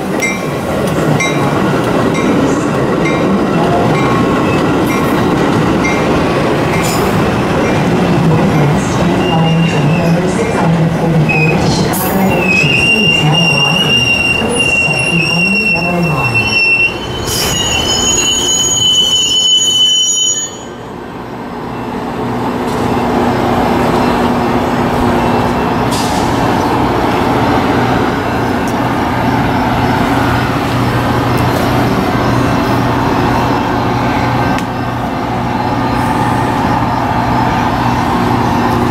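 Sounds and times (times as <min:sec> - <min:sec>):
rumble of train wheels on rail: 0:00.0 - 0:19.8, 0:20.7 - 0:38.9
high-pitched metallic wheel squeal: 0:12.3 - 0:20.8.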